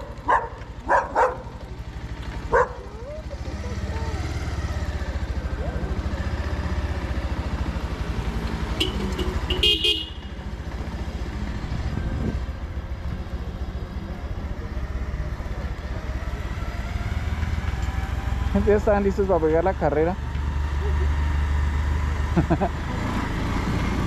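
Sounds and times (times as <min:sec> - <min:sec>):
motorcycle engine running: 0:00.0 - 0:24.0
horn honking: 0:08.7 - 0:10.5.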